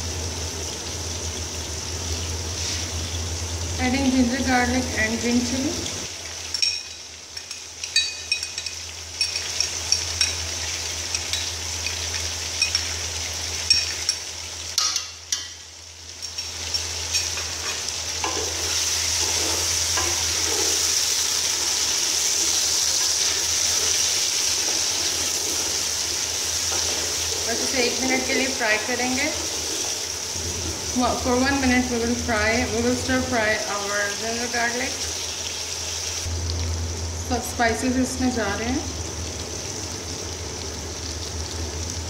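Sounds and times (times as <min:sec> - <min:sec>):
food sizzling in hot oil: 0:00.0 - 0:42.0
wooden spoon scraping a pot: 0:17.6 - 0:25.8.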